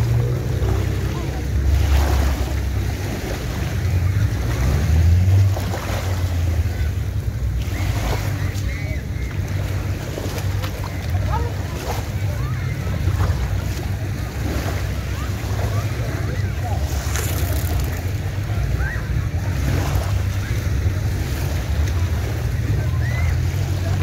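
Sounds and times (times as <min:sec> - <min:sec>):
small waves washing on beach: 0:00.0 - 0:24.0.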